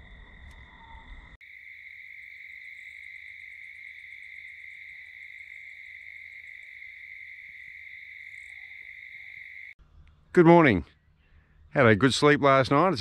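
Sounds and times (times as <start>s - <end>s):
crickets trilling: 0.0s - 9.8s.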